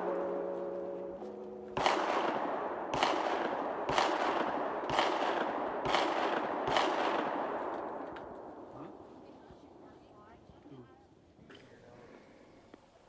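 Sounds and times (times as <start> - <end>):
gunshots with echo: 1.6 - 9.0.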